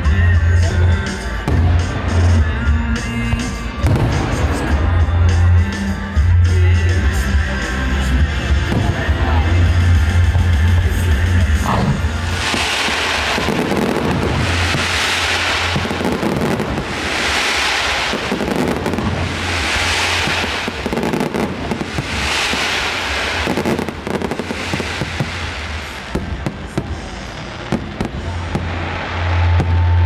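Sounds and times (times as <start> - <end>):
firework crackling: 0.0 - 30.0
sharp firework bangs: 3.4 - 4.8, 11.6 - 30.0
firework shells bursting: 11.7 - 26.2.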